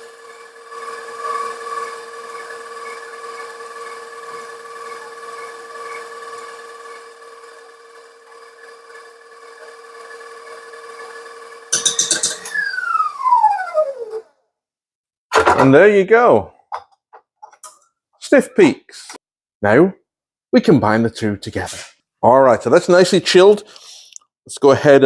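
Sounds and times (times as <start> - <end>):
stand mixer motor whining: 0.0 - 14.2.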